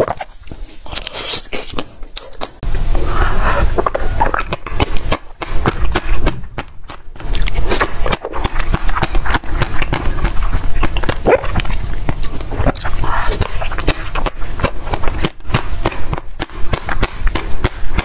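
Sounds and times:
wet mouth sounds: 0.0 - 18.0
biting and crunching ice: 3.9 - 18.0.

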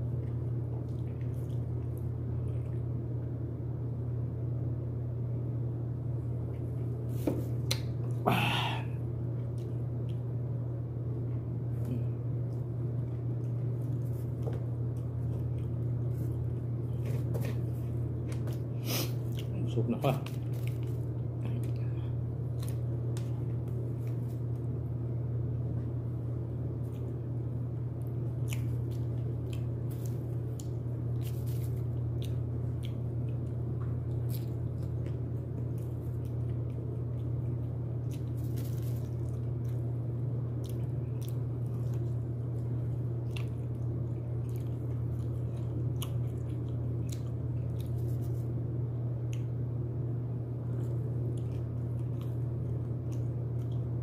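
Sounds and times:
steady low hum: 0.0 - 54.0
wet chewing clicks: 28.0 - 48.4, 50.7 - 54.0.

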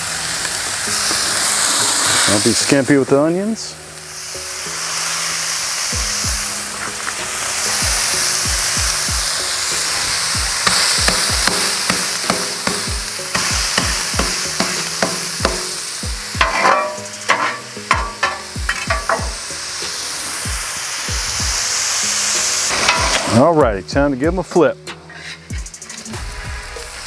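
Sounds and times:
meat and onions sizzling on griddle: 0.0 - 27.0
spatula clicking and scraping griddle: 10.6 - 15.8, 16.4 - 19.4, 22.7 - 23.4, 24.9 - 26.2.

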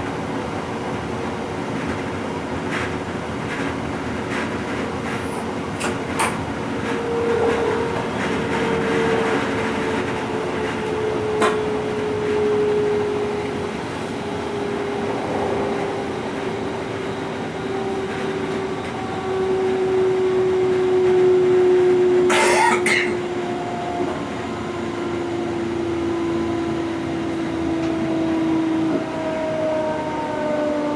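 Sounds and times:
rail rumble: 0.0 - 21.3
electric traction whine: 10.4 - 19.6.

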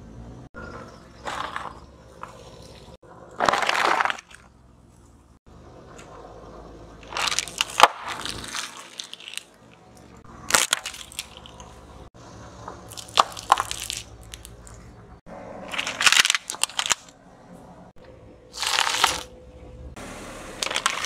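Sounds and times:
crunching and cracking: 0.7 - 5.1, 7.0 - 17.2, 18.5 - 19.3, 20.6 - 21.0
tyre crushing objects: 0.9 - 2.6, 3.4 - 4.5, 7.0 - 9.8, 10.5 - 11.8, 12.8 - 14.7, 15.6 - 17.1, 18.6 - 19.3.

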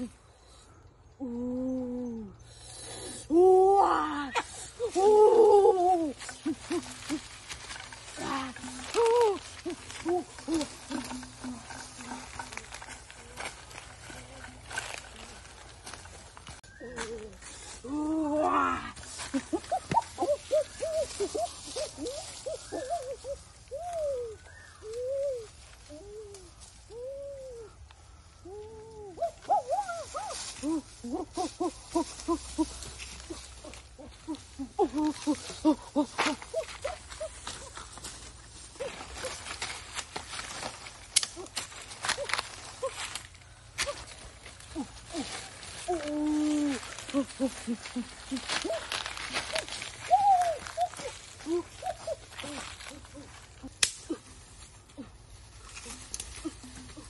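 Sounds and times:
dry leaves crackling underfoot: 1.8 - 57.0.

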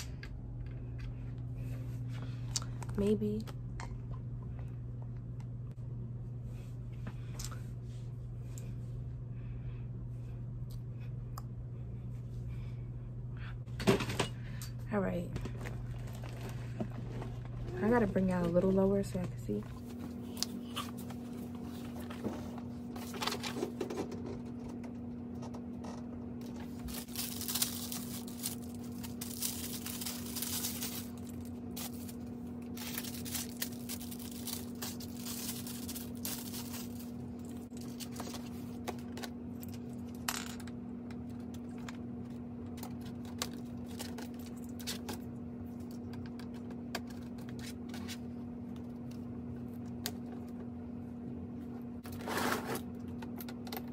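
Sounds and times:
steady low hum: 0.0 - 53.9
packaging rustling: 26.4 - 39.1.

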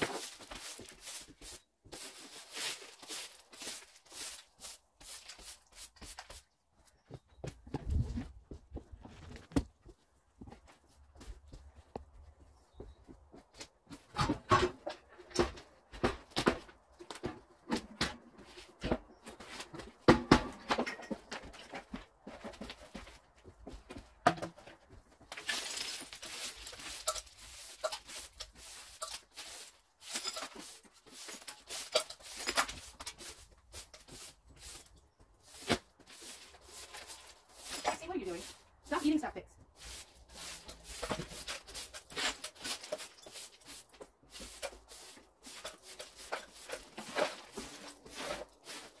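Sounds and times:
rustling: 0.0 - 6.4, 25.3 - 49.0.

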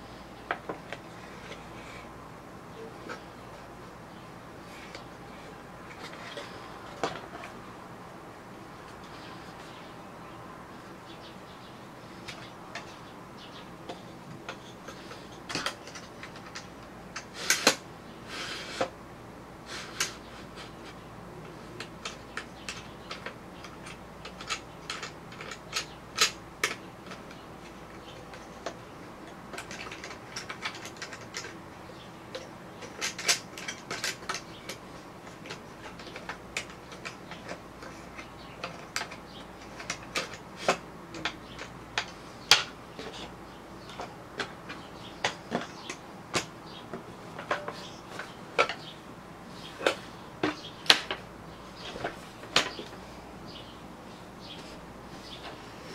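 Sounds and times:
bamboo parts clicking and knocking: 0.5 - 2.0, 5.8 - 7.6, 12.0 - 17.9, 19.8 - 53.0.

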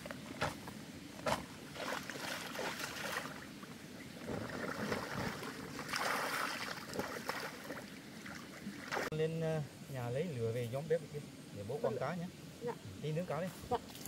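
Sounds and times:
water splashing and sloshing: 0.3 - 9.2.

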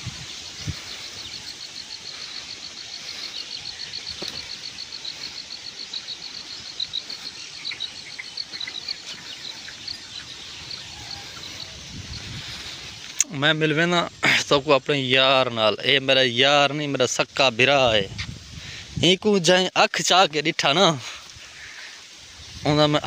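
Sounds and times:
bird calls: 0.0 - 13.4, 21.2 - 22.9
steady hiss: 0.0 - 23.0.

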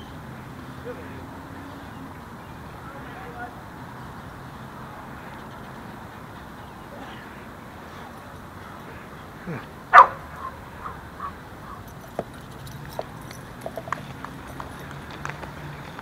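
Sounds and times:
dog barking: 9.9 - 11.0.

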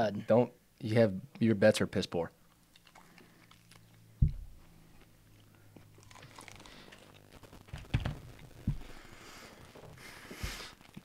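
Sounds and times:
person chewing: 2.4 - 4.1, 4.9 - 7.3
dull thumps: 4.2 - 4.7, 7.7 - 9.0.

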